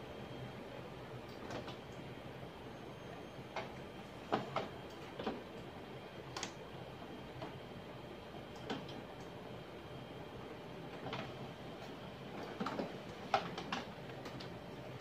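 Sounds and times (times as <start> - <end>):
laser printer humming: 0.0 - 15.0
printer clicks and ticks: 8.5 - 9.4, 12.4 - 14.6.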